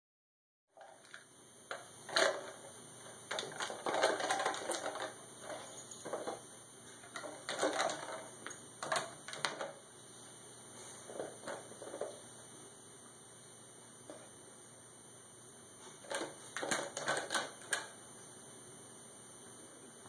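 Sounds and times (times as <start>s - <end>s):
plastic bottle crinkling and clattering: 3.3s - 6.4s, 7.1s - 9.8s.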